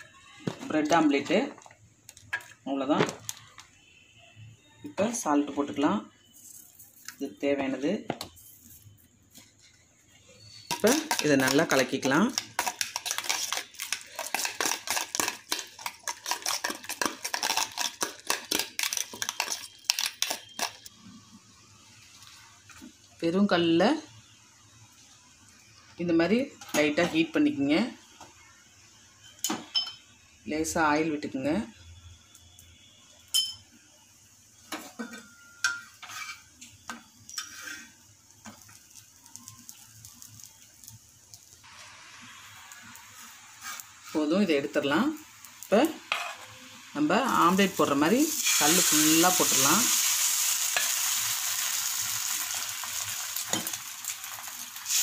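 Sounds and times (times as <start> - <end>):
faint sizzle: 0.0 - 55.0
utensil beating eggs in steel bowl: 10.7 - 20.7
metal spatula scraping griddle: 36.0 - 36.5, 37.3 - 38.0, 43.5 - 44.3.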